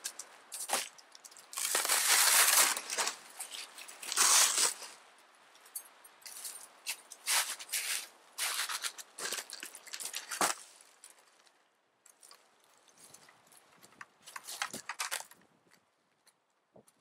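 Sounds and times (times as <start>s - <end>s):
gear rustling on plastic sled: 0.0s - 5.0s, 6.2s - 11.6s, 12.2s - 15.5s
snowshoes crunching snow: 1.6s - 5.0s, 6.9s - 10.8s.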